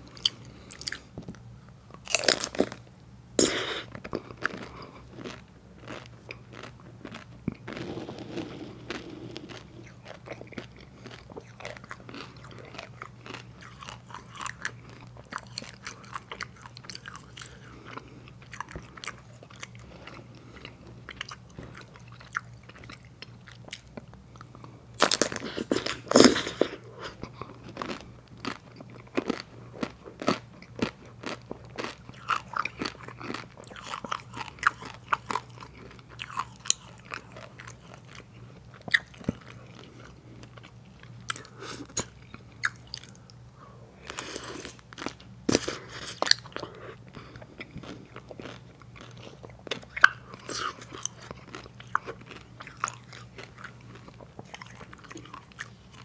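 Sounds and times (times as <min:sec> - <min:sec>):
wet mouth clicks and chewing: 0:00.1 - 0:01.4, 0:03.4 - 0:43.4, 0:44.0 - 0:56.0
crunching bite: 0:02.0 - 0:02.8, 0:03.4 - 0:17.7, 0:25.0 - 0:43.2, 0:47.6 - 0:56.0.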